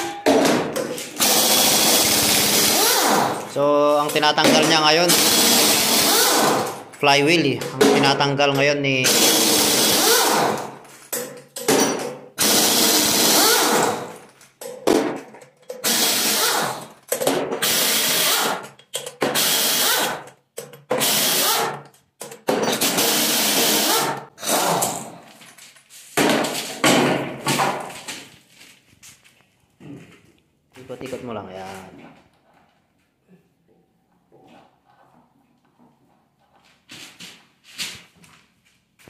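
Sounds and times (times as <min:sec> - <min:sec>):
power tool bursts: 0:01.2 - 0:03.5, 0:05.1 - 0:06.8, 0:09.0 - 0:10.7, 0:12.4 - 0:14.2, 0:15.8 - 0:16.9, 0:17.6 - 0:18.6, 0:19.2 - 0:20.2, 0:21.0 - 0:21.8, 0:22.6 - 0:25.1.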